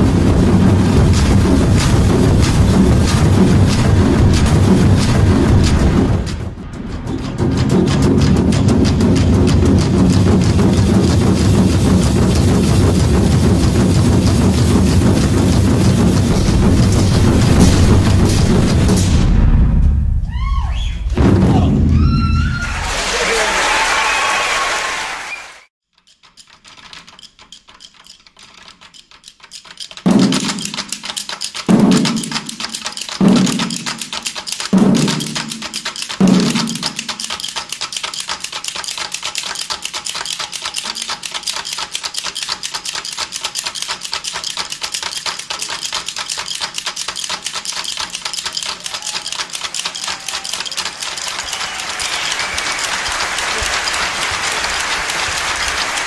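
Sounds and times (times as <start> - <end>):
fast steady drumming: 0.0 - 19.6, 28.0 - 56.0
heavy drum strikes: 0.0 - 22.9, 30.1 - 30.9, 31.7 - 37.3.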